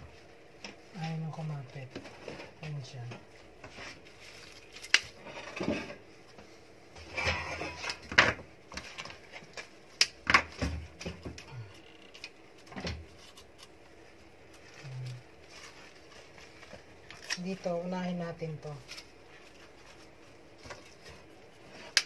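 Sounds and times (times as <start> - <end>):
handling flowers and cardboard box: 0.0 - 6.8, 13.0 - 22.0.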